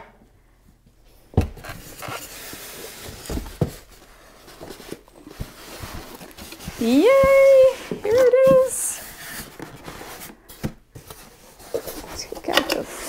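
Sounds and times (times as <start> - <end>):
styrofoam rustling and scraping: 1.5 - 13.0.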